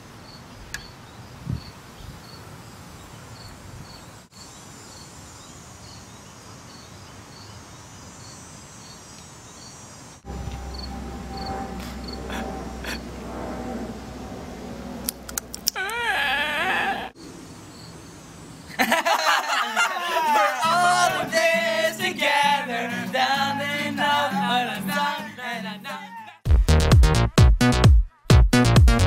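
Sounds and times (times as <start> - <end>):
acoustic guitar strumming: 10.2 - 14.2, 20.6 - 25.7
warbling voice-like sound: 11.2 - 14.9
people singing along: 20.2 - 26.3.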